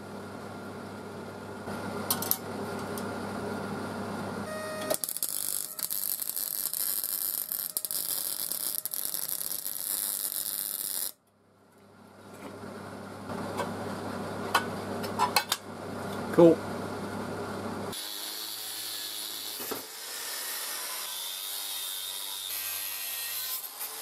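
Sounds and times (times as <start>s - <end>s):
steady low hum: 0.0s - 7.9s
welding arc crackling and hissing: 4.9s - 11.2s.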